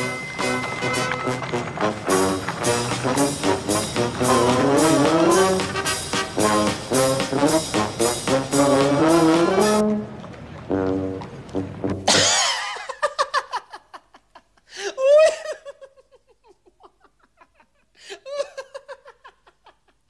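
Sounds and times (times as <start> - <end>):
brass music: 0.0 - 12.2
man laughing: 12.1 - 20.0.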